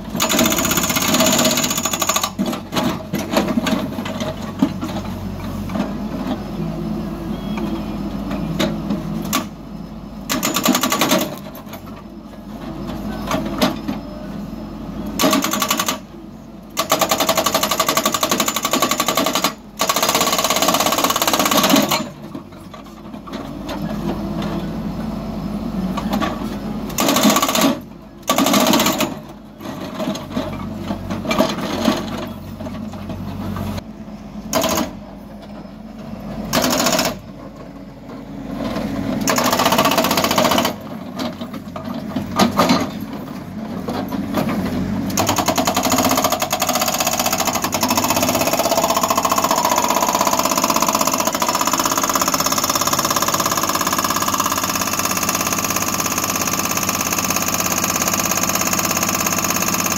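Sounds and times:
diesel engine running: 0.0s - 59.9s
hydraulic breaker hammering on rock: 45.2s - 59.9s.

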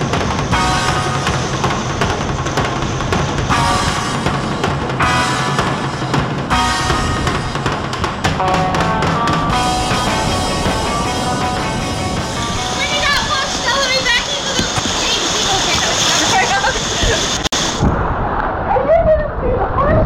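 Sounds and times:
background music with drum beat: 0.0s - 15.0s.

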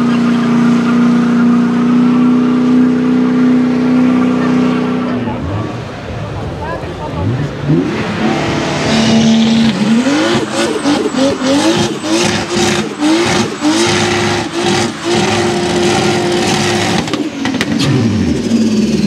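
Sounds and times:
car engine revving: 0.0s - 19.0s
tyres squealing: 8.9s - 17.1s.

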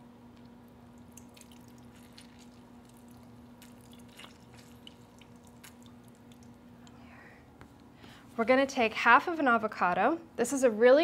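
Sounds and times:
steady low hum: 0.0s - 11.0s
juice dripping into plastic jar: 0.3s - 7.0s
lemon squelching: 1.0s - 6.6s.

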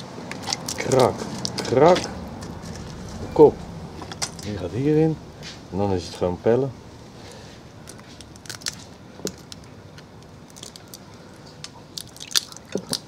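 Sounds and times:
crayfish shells cracking: 0.0s - 3.2s, 7.7s - 13.0s.

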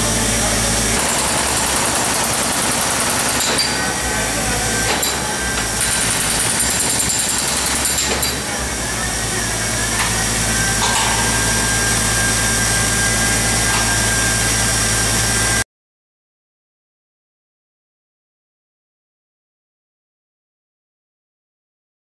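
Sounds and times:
high-pressure water jet hiss: 0.0s - 15.6s
low machine hum: 0.0s - 15.6s.

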